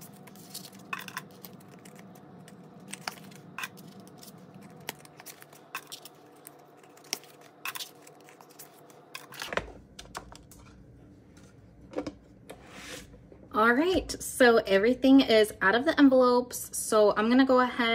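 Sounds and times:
plastic envelopes crinkling: 0.0s - 10.3s.

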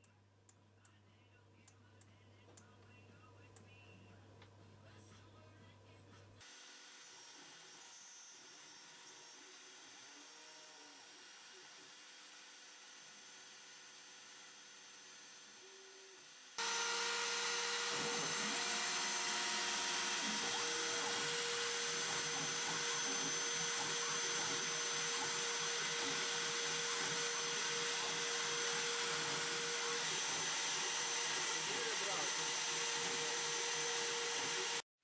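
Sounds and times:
mill cutting and coolant hiss: 16.6s - 34.8s.

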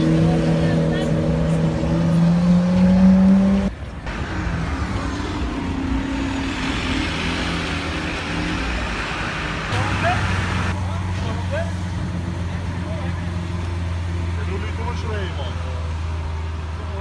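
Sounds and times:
loud sports car engine pulling away: 0.0s - 3.7s
street noise: 0.0s - 17.0s.

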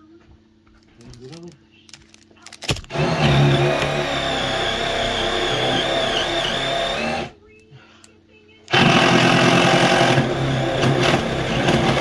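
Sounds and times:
power drill running: 2.7s - 7.4s, 8.7s - 12.0s.

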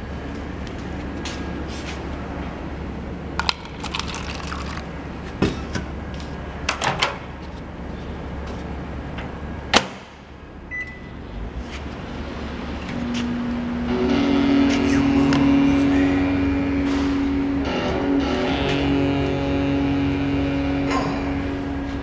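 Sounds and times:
low hum: 10.4s - 22.0s
keypad beep: 10.7s - 11.1s.

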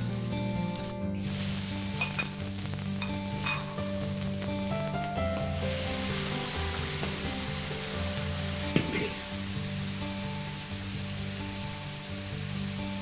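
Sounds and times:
shrimp sizzling in oil: 0.0s - 13.0s.

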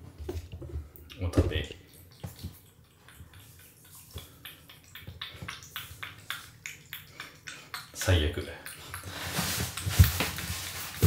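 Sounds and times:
cat lapping wet food: 1.1s - 9.9s.

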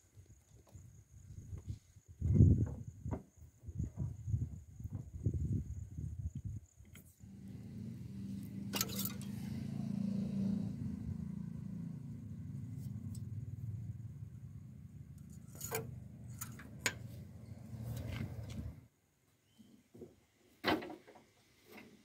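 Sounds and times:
low engine hum: 7.2s - 18.8s
dipstick clicks and scrapes: 15.2s - 17.0s.

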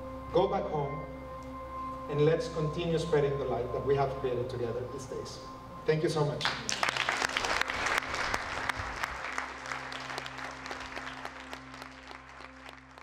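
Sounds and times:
audience applauding: 6.4s - 13.0s.

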